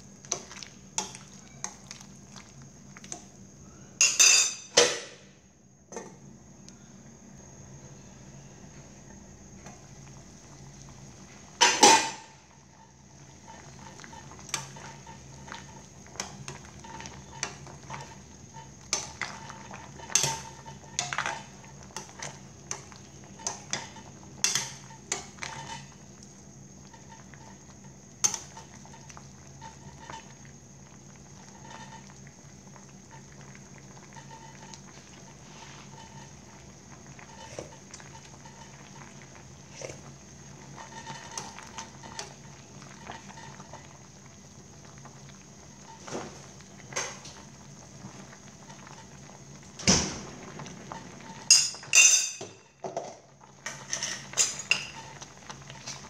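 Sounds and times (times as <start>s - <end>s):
soup bubbling: 0.0s - 4.2s, 9.5s - 56.0s
pot lid clanging: 51.5s - 52.6s
utensil clinking against pot: 51.5s - 52.6s.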